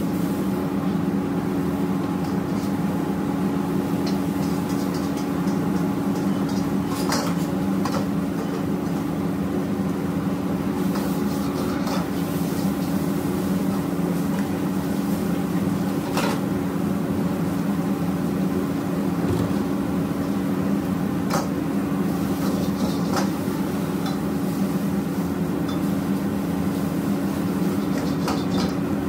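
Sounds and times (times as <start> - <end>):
gas wok range humming: 0.0 - 29.0.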